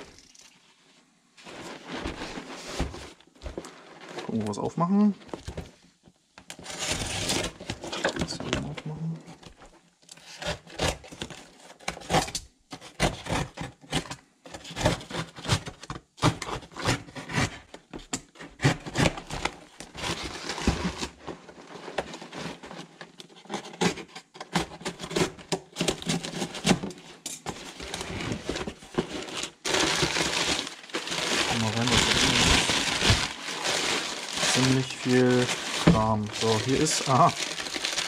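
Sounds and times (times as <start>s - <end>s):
crumpled newspaper rustling: 1.4s - 4.7s, 27.5s - 38.0s.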